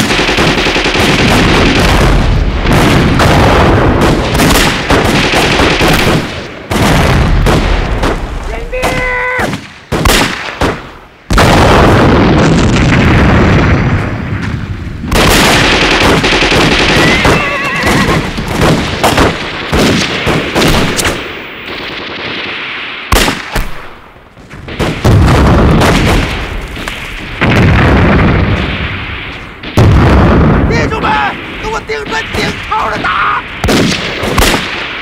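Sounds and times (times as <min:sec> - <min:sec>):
rifle and pistol gunfire: 0:00.0 - 0:13.9, 0:15.1 - 0:30.7, 0:31.3 - 0:35.0
heavy explosions: 0:00.0 - 0:35.0
short high-pitched cry: 0:17.0 - 0:18.2.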